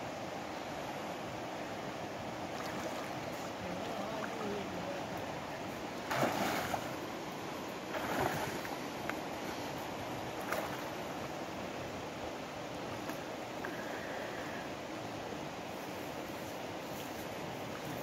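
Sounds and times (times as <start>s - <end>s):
river water rushing: 0.0s - 18.0s
water splashing: 2.5s - 5.0s, 6.0s - 7.1s, 7.9s - 8.8s, 10.4s - 11.0s.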